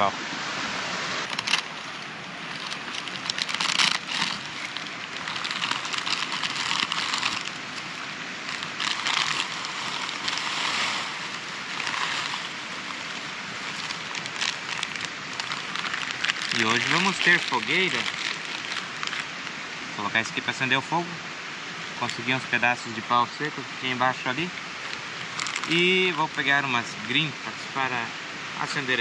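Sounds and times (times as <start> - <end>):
steady rushing noise: 0.0 - 20.1
plastic packet crinkling: 1.2 - 19.6, 24.8 - 26.5.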